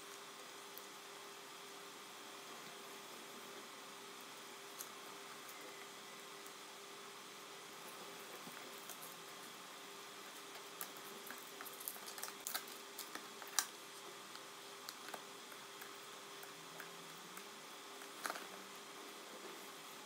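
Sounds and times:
faint steady hum: 0:00.0 - 0:20.0
paper crinkling: 0:10.3 - 0:13.8.

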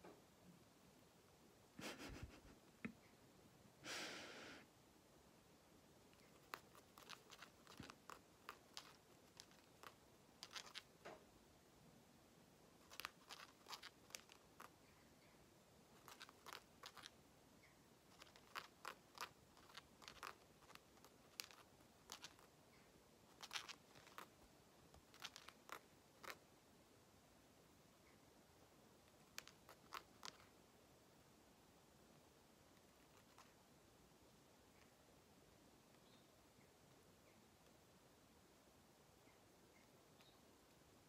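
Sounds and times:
bird beak clicking: 0:06.2 - 0:10.9, 0:12.8 - 0:14.8, 0:16.0 - 0:17.1, 0:18.1 - 0:22.5, 0:23.4 - 0:24.3, 0:25.1 - 0:26.4.

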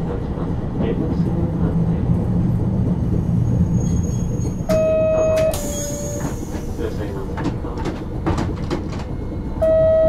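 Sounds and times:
streetcar rumbling on rails: 0:00.0 - 0:10.0
loud steady beep: 0:04.7 - 0:06.2, 0:09.6 - 0:10.0.

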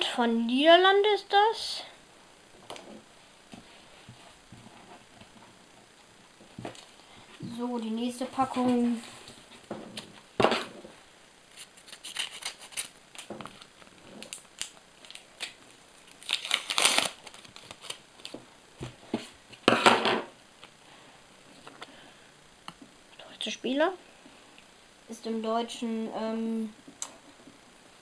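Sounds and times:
paper wrapper crinkling and tearing: 0:11.5 - 0:18.4.

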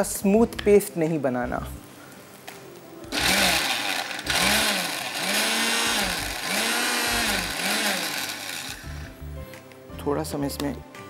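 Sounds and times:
electric blender pulsing: 0:03.1 - 0:09.2.

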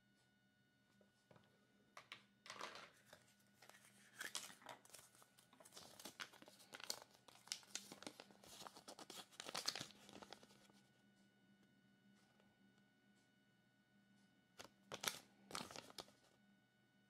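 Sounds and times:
paper crinkling and rustling: 0:02.8 - 0:10.8, 0:14.6 - 0:16.3.

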